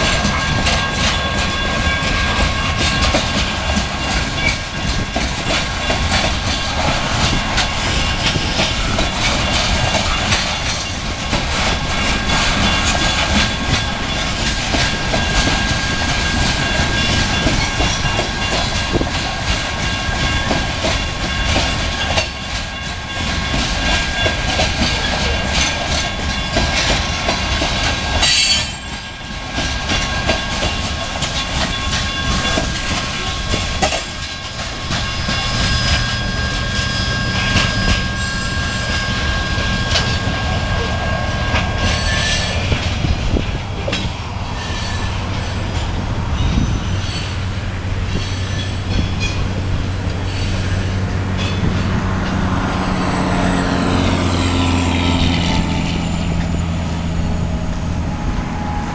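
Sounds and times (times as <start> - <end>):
train wheels clattering over rail joints: 0.0 - 57.6
high-pitched wheel squeal: 28.2 - 29.0, 34.9 - 43.2, 43.8 - 47.5, 50.2 - 51.8.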